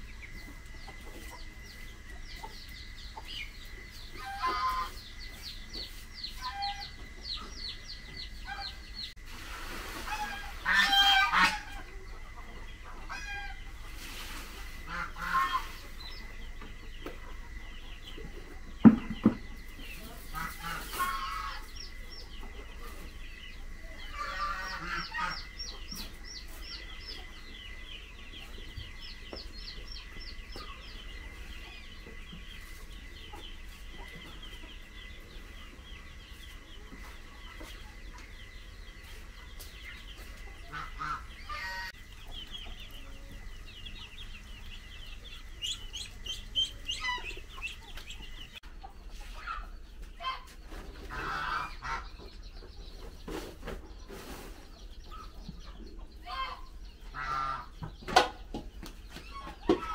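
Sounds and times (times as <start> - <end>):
chickens clucking: 0.0 - 59.9
rapid high-pitched chirping: 42.1 - 48.6.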